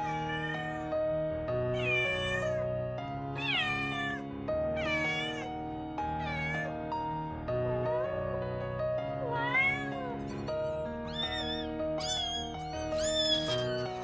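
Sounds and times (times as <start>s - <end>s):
cat meowing: 0.0s - 0.9s, 1.7s - 2.7s, 3.4s - 4.2s, 4.8s - 5.5s, 6.1s - 6.8s, 9.2s - 10.2s, 11.0s - 14.0s
soft instrumental music: 0.0s - 14.0s.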